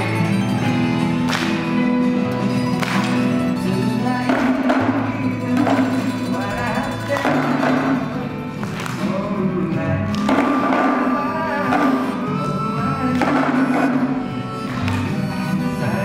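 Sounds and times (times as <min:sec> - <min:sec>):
music with singing: 0:00.0 - 0:16.0
hand drums struck with sticks: 0:10.2 - 0:12.2.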